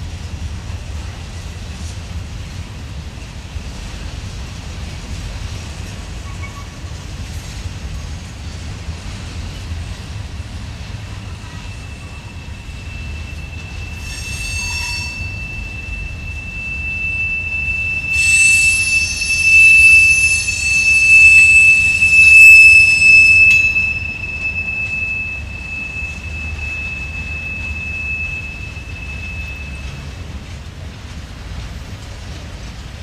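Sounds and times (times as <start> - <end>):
low rumble of freight cars: 0.0 - 33.0
train wheels squealing on rails: 0.0 - 33.0
shrill wheel squeal: 6.2 - 6.9, 10.3 - 30.6.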